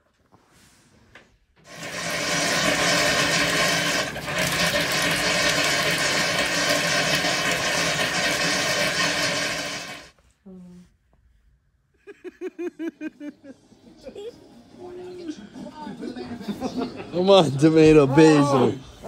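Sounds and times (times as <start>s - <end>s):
water gushing into bathtub: 1.6s - 10.2s.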